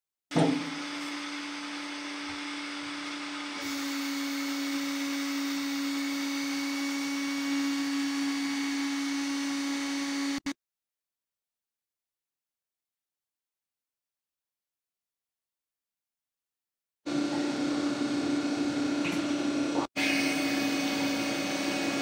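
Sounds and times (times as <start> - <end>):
machine humming: 0.4 - 10.5, 17.1 - 22.0.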